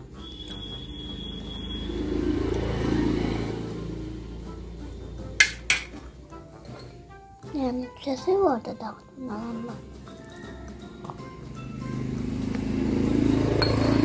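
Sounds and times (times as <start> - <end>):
vehicle engine passing by: 0.1 - 5.4, 11.2 - 14.0.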